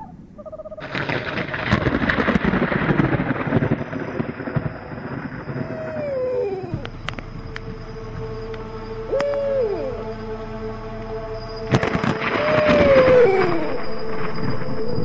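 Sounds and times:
owl hoot: 0:00.0 - 0:00.9, 0:05.5 - 0:07.7, 0:08.3 - 0:10.2, 0:11.6 - 0:14.0
thunder crash and rumble: 0:00.8 - 0:08.3, 0:11.7 - 0:15.0.

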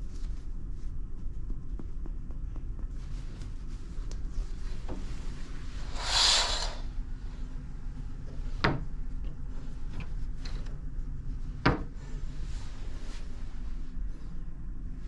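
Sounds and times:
steady low hum: 0:00.0 - 0:15.0
curtain swishing: 0:05.6 - 0:07.0
curtain runners sliding on rail: 0:05.8 - 0:07.0.

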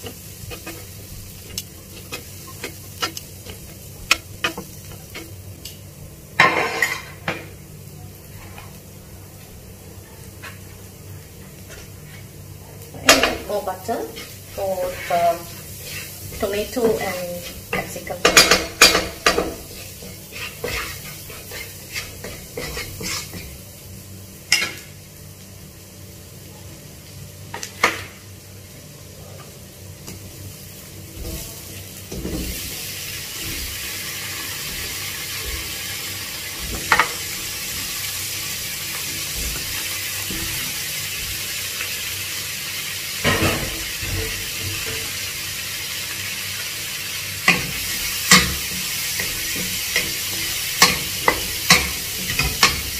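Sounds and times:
garlic frying in butter: 0:00.0 - 0:08.8, 0:10.2 - 0:52.9
vegetables sizzling: 0:00.0 - 0:52.9
wooden spatula scraping a pan: 0:14.0 - 0:18.0, 0:18.8 - 0:23.5.

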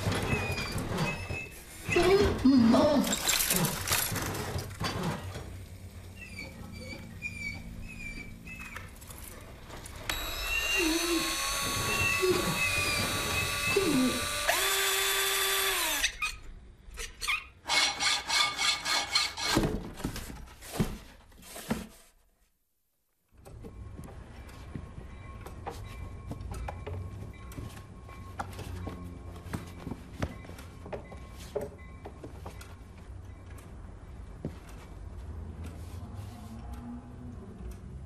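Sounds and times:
whirring drill-like machine: 0:10.1 - 0:16.2.

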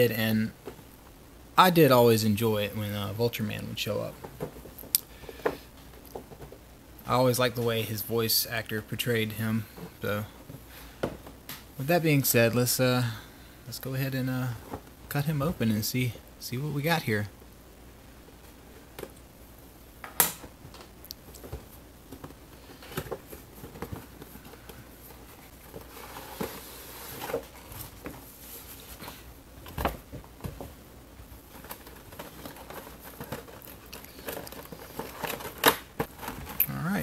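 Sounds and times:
plastic and card crinkling: 0:31.4 - 0:37.0.

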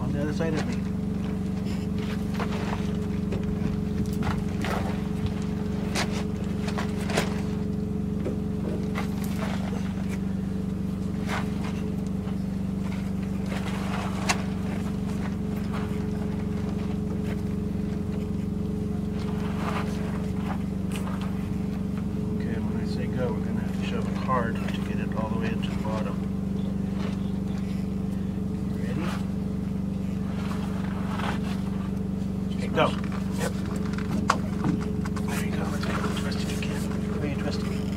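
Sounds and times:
motor drone: 0:00.0 - 0:37.9.

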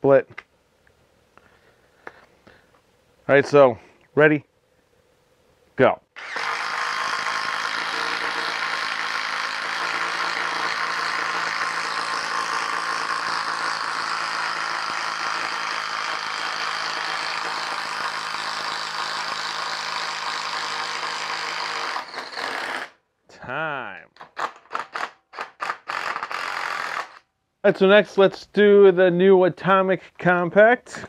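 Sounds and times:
impact driver hammering: 0:06.2 - 0:22.9.

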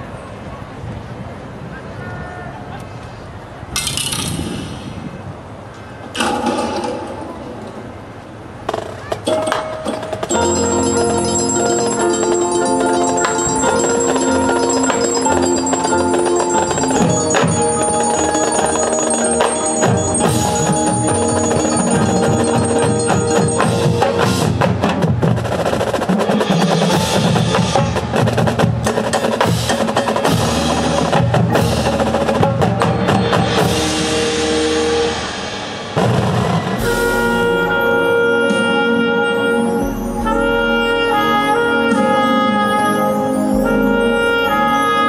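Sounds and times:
tenor drums: 0:08.6 - 0:45.0
ringing bell-like tones: 0:10.3 - 0:24.7, 0:36.8 - 0:45.0
bass drums: 0:10.3 - 0:25.8, 0:35.9 - 0:38.1
cymbal crashes: 0:33.4 - 0:38.3
snare drum: 0:35.6 - 0:37.8.

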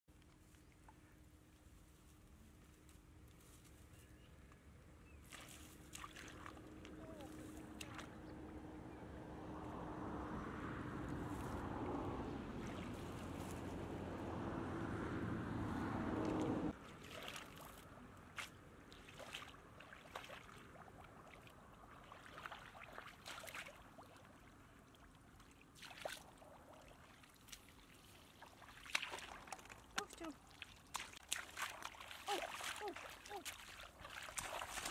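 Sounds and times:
feet wading through muddy water: 0:05.1 - 0:08.6, 0:12.5 - 0:14.2, 0:15.7 - 0:34.9.

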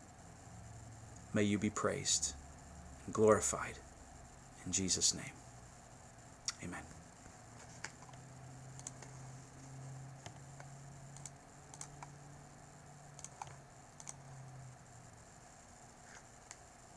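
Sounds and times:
low steady hum: 0:00.0 - 0:16.9
computer keyboard clicks: 0:08.8 - 0:09.0, 0:10.2 - 0:12.1, 0:13.2 - 0:14.2.

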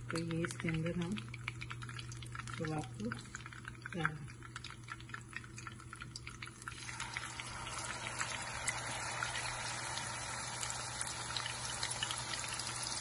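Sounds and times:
hot oil crackling: 0:00.0 - 0:13.0
meat sizzling in oil: 0:06.7 - 0:13.0.

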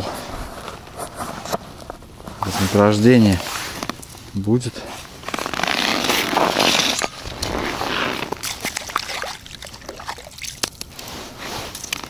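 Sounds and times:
rustling: 0:00.0 - 0:12.0
water and slush sloshing: 0:06.2 - 0:12.0.

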